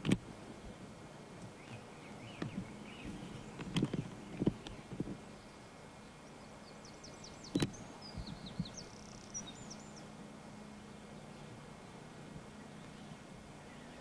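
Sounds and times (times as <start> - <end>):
steady low hum: 0.0 - 14.0
small bird chirping: 1.5 - 10.2.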